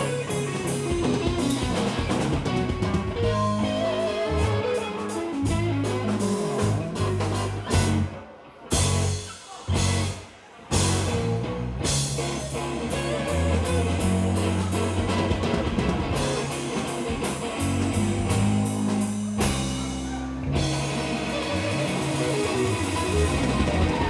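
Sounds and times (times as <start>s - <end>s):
blues rock band playing: 0.0s - 24.0s.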